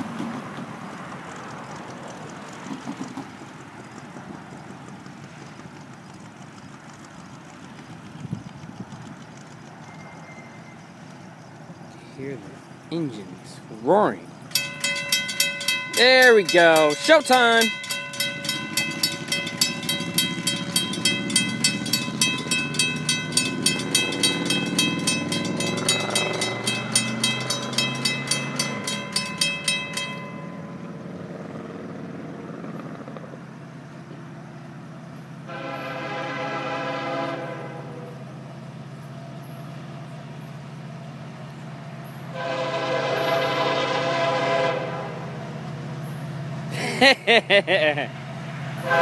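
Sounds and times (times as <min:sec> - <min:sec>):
diesel locomotive engine rumble: 0:00.0 - 0:49.0
crossing warning bell ringing: 0:09.4 - 0:11.5, 0:12.6 - 0:31.9, 0:42.3 - 0:49.0
locomotive air horn blasts: 0:35.5 - 0:38.2, 0:42.3 - 0:45.5, 0:48.8 - 0:49.0.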